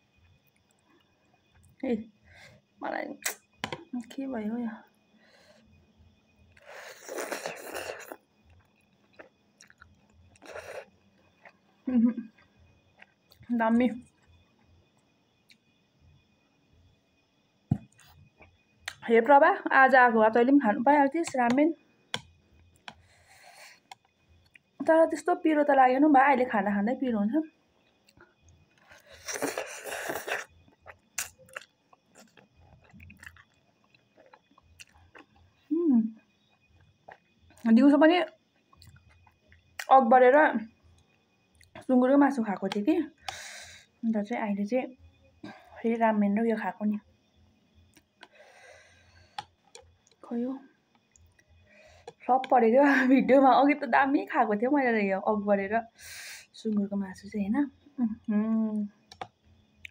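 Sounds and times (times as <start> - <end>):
quiet chewing: 6.5 - 15.7, 17.8 - 19.0, 22.1 - 24.8, 27.8 - 39.9, 47.7 - 50.3, 50.9 - 52.5, 59.1 - 59.9.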